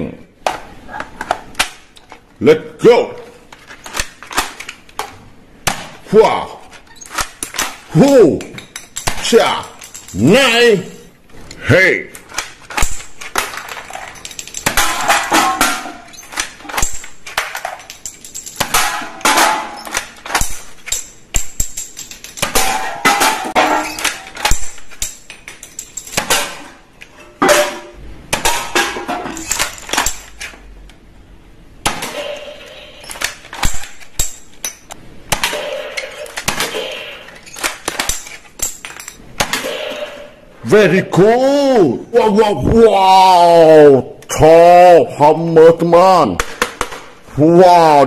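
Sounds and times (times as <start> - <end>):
cans clanging and clattering: 12.2 - 30.5, 32.0 - 40.4.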